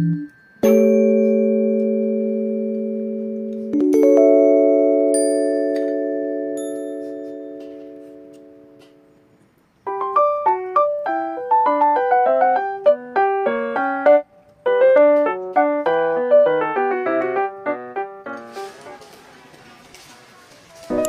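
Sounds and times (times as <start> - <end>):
quick keyboard melody: 0.0 - 18.8
held chord: 0.6 - 9.2.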